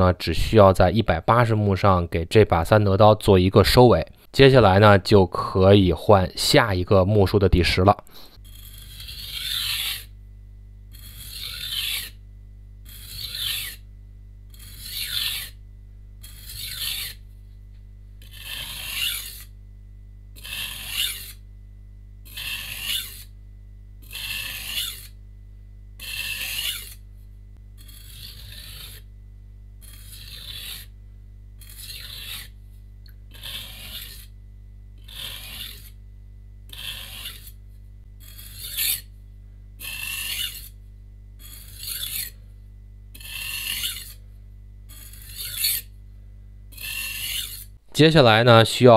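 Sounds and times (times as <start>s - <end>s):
knife scraping on whetstone: 8.4s - 10.1s, 10.9s - 12.2s, 12.8s - 13.8s, 14.5s - 15.6s, 16.2s - 17.2s, 18.2s - 19.6s, 20.4s - 21.4s, 22.3s - 23.4s, 24.0s - 25.2s, 26.0s - 27.0s, 27.8s - 29.1s, 29.8s - 30.9s, 31.6s - 32.6s, 33.3s - 34.4s, 35.0s - 36.0s, 36.7s - 37.6s, 38.2s - 39.1s, 39.8s - 40.8s, 41.4s - 42.4s, 43.2s - 44.2s, 44.9s - 45.9s, 46.7s - 47.8s.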